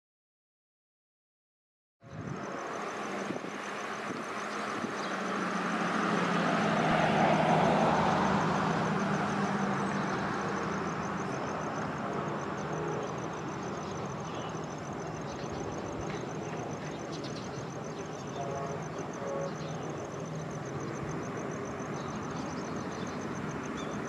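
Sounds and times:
vehicle passing by: 2.1 - 14.8.

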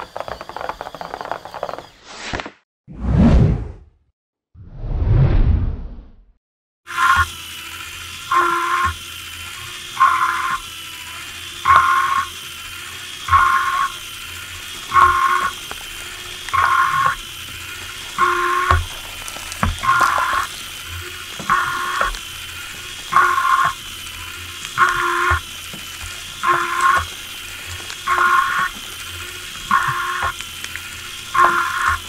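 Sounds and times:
electric motor whine: 6.9 - 32.0.

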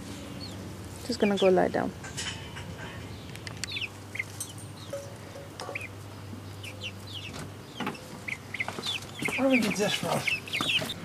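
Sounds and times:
chicks peeping: 0.0 - 1.9, 3.0 - 11.0.

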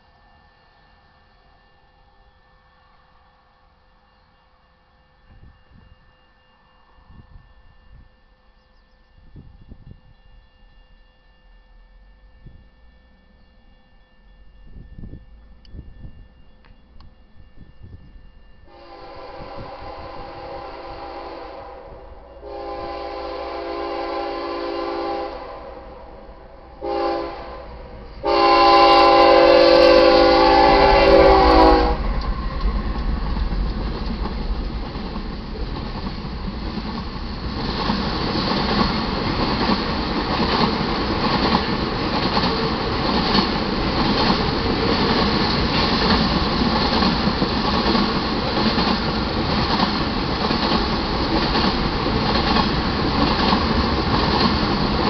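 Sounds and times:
train rumbling: 0.0 - 55.0
freight train horn blasts: 4.1 - 32.6.

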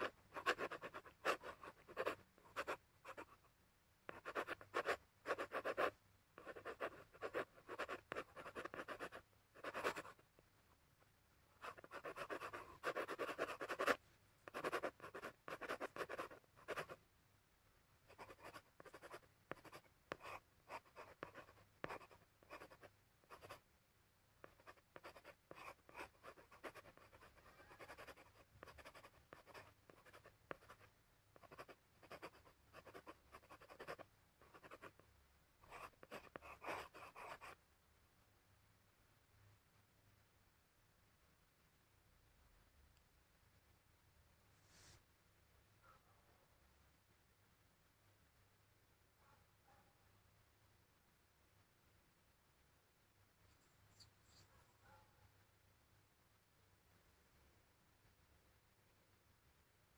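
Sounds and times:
pencils scratching on paper: 0.0 - 3.3, 11.6 - 17.0, 24.4 - 35.0.

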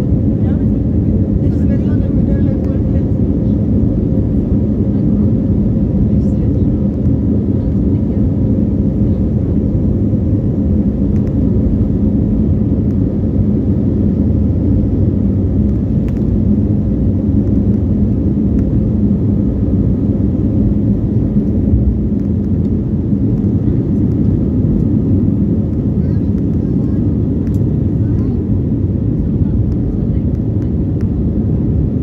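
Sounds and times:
jet cabin engine rumble: 0.0 - 32.0.

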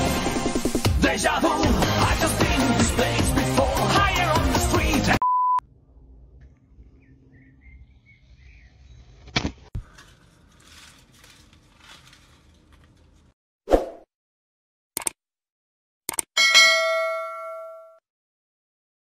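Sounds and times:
loud music: 0.0 - 5.2
steady beep tone: 5.2 - 5.6
sharp click: 15.0 - 15.2, 16.1 - 16.3.

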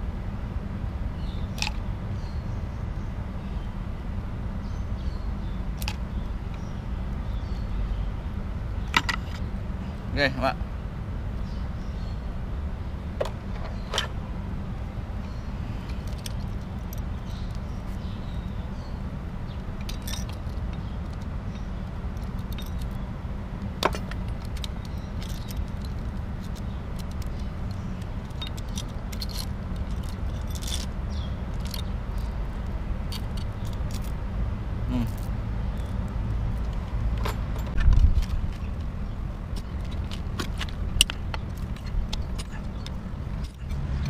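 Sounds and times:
steady low rumble: 0.0 - 44.0
chain rattle: 19.8 - 23.0, 23.8 - 32.4, 39.5 - 44.0
light metallic clinks: 19.8 - 23.0, 39.6 - 44.0.

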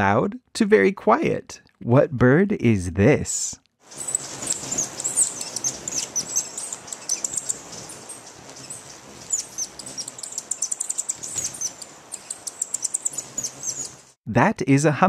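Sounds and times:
hummingbirds chipping and twittering: 3.9 - 14.2.

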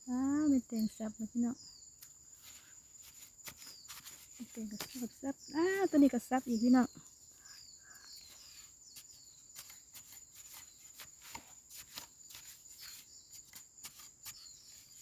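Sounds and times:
insect drone: 0.0 - 15.0
digging tool scraping soil: 2.3 - 5.2, 8.2 - 15.0.

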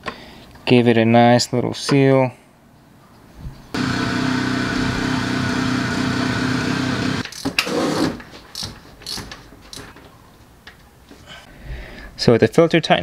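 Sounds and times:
power ratchet running: 3.8 - 7.2.

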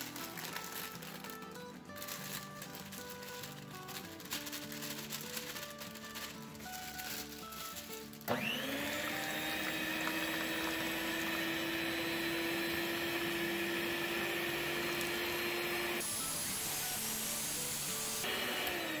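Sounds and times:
background music: 0.0 - 19.0
stand mixer motor whining: 8.3 - 19.0.

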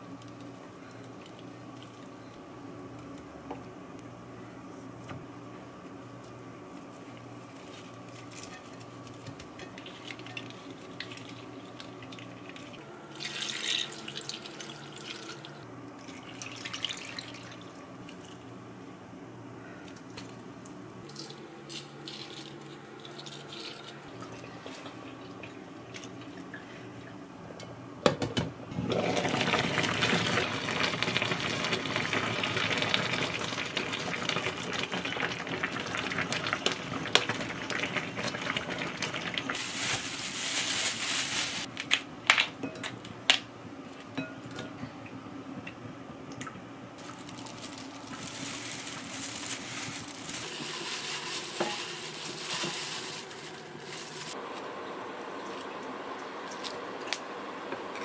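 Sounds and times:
water pouring into pot: 13.2 - 15.4
stew boiling loudly: 28.7 - 41.7, 46.9 - 57.9.

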